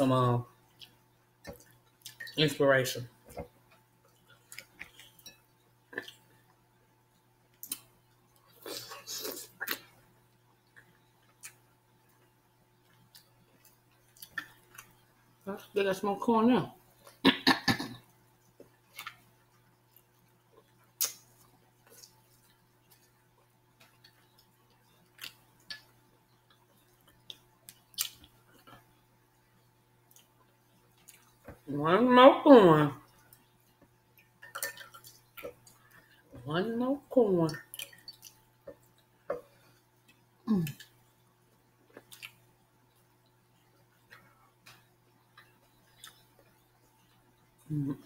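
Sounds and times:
person chewing and lip smacking: 0.7 - 2.4, 3.3 - 6.3, 7.5 - 10.0, 10.6 - 12.2, 12.8 - 15.1, 18.4 - 28.9, 30.0 - 31.6, 33.1 - 36.2, 37.5 - 41.1, 41.8 - 47.3.

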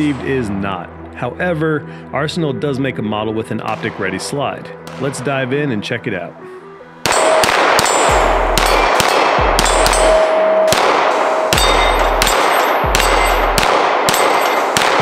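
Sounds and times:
pistol shots: 4.8 - 5.3, 7.0 - 15.0
steel targets clanging: 7.1 - 15.0.

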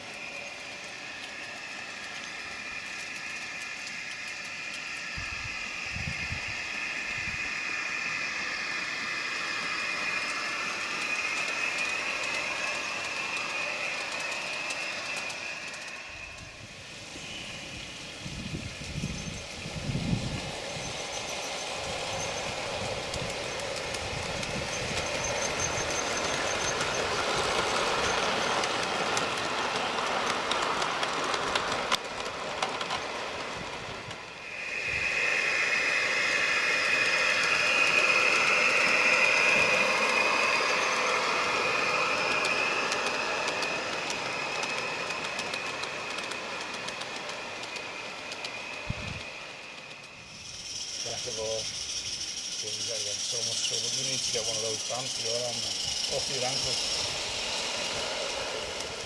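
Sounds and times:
wheels clicking over rail joints: 0.0 - 16.7, 18.4 - 59.0
model trains rolling on track: 0.0 - 59.0.

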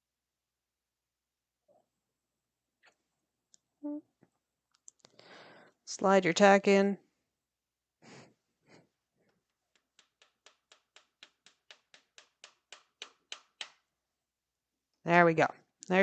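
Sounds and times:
hammer tapping tack nail: 9.8 - 13.8.

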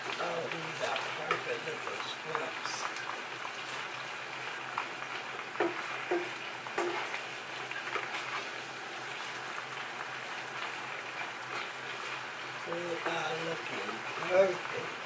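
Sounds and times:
shrimp sizzling in a frying pan: 0.0 - 15.0
spatula knocking against pan: 5.6 - 7.1.

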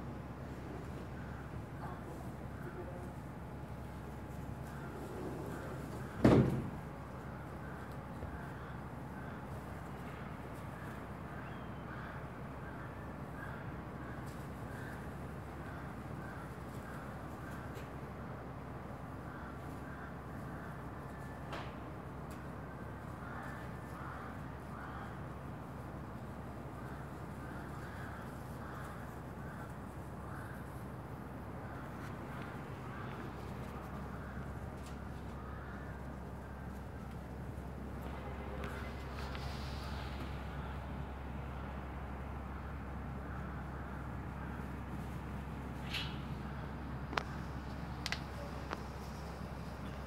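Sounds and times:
low background hum: 0.0 - 50.0
low background rumble: 21.9 - 50.0.

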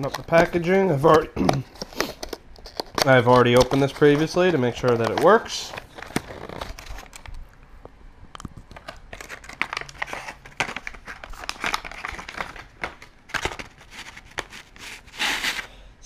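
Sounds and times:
plastic insert crinkling: 0.0 - 7.6, 8.4 - 15.7
cardboard box opening: 1.8 - 7.2, 13.3 - 15.7.

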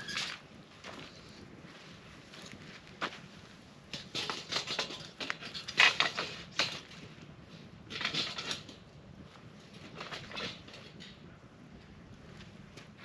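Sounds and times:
metal grill grate scraping on stones: 3.9 - 7.1, 7.9 - 9.0, 9.7 - 11.2.

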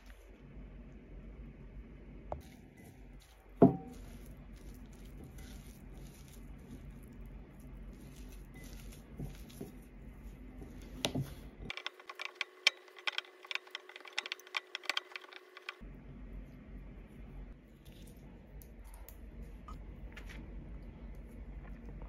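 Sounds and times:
faint steady hum: 0.0 - 22.0
fingers kneading crumbly dough: 2.4 - 15.9.

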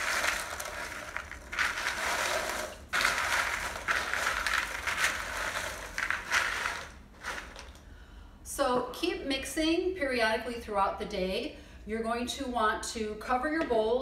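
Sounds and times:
pretzels clattering in plastic bowl: 0.0 - 7.8.

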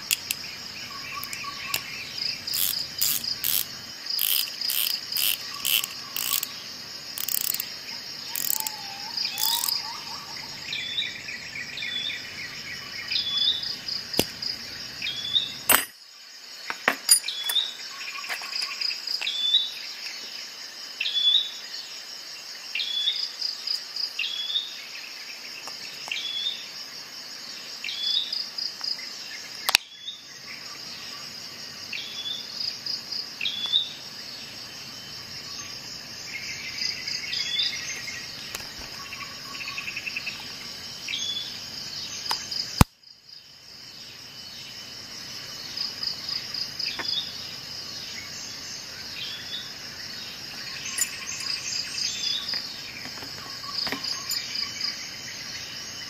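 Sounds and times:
metal tool parts clicking: 0.0 - 0.4, 1.2 - 1.9, 2.5 - 6.5, 7.2 - 7.7, 8.4 - 8.7, 9.4 - 9.8, 15.7 - 16.0, 16.8 - 17.7, 50.9 - 51.6
bird chirping: 0.0 - 15.7, 16.7 - 20.3, 33.4 - 42.6, 45.6 - 56.0
insects chirping: 0.0 - 56.0.

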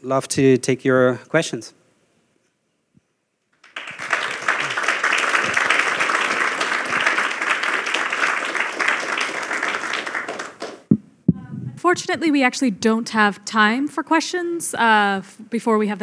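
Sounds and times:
audience applauding: 3.6 - 10.9.

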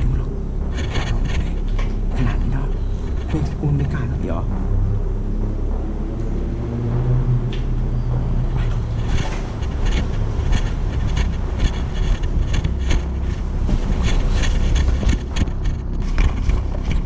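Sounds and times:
wind on microphone: 5.9 - 17.0.

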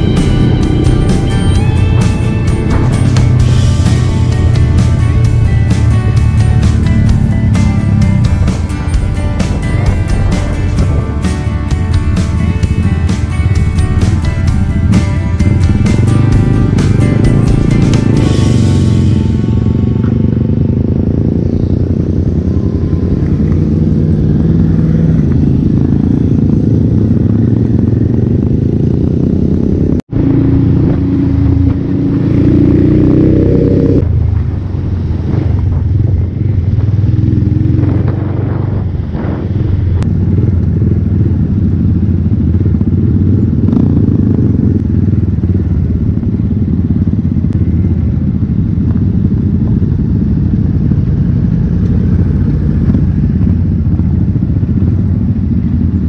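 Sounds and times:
motorcycle engine drone: 0.0 - 56.0
wind noise: 16.8 - 56.0.

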